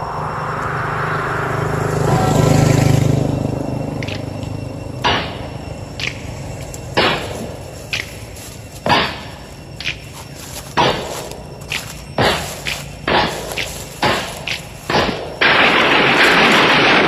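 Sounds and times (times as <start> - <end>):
held low music chord: 0.0 - 15.6
sharp percussive hits: 8.8 - 10.0, 10.8 - 17.0.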